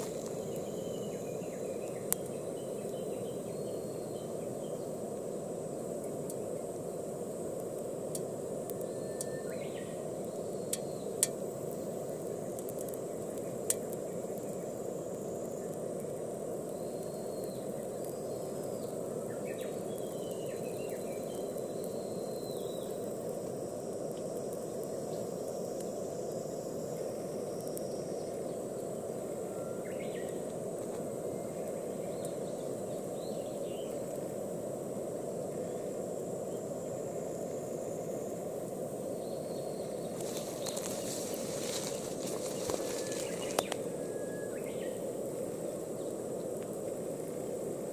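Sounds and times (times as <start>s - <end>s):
bird chirps: 39.3s - 45.0s.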